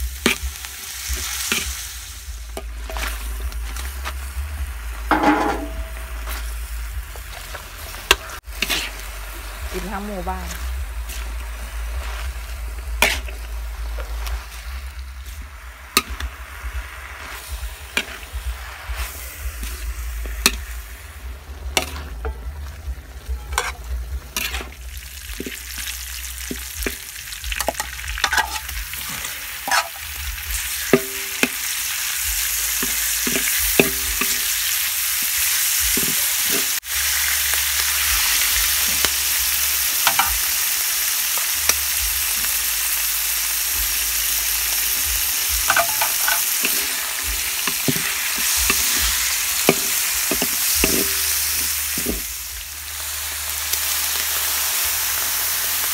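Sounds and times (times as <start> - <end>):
hot oil sizzling: 0.0 - 55.9
metal spatula scraping a wok: 0.1 - 4.2, 7.3 - 9.2, 10.5 - 37.3, 44.9 - 52.4.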